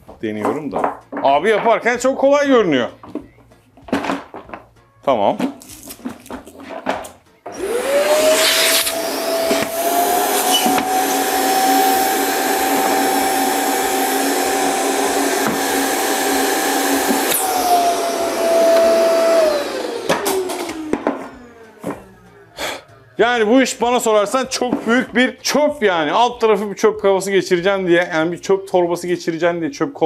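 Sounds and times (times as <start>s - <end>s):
vacuum cleaner motor whining: 7.4s - 22.6s.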